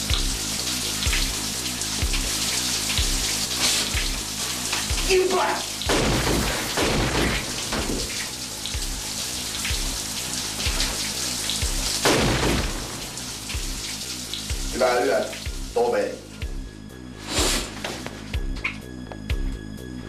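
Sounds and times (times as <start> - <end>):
shower spray hissing: 0.0 - 16.1, 17.2 - 17.9
background music with beat: 16.4 - 20.0.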